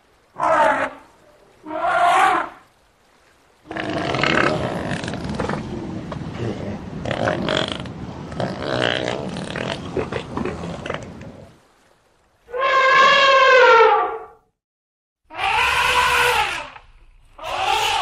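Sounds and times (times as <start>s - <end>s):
outdoor background noise: 0.0s - 14.6s, 15.2s - 18.0s
elephant trumpeting: 12.5s - 14.3s, 15.3s - 16.8s, 17.4s - 18.0s.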